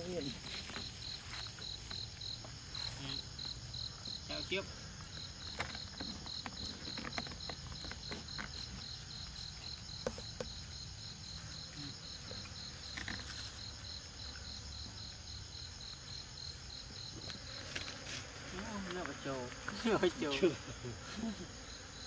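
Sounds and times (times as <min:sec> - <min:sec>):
insects chirping: 0:00.0 - 0:22.0.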